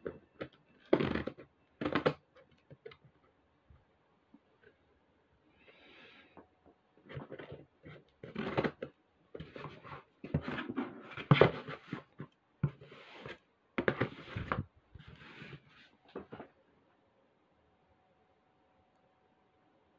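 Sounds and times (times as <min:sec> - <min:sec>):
cardboard rustling: 0:07.1 - 0:16.6.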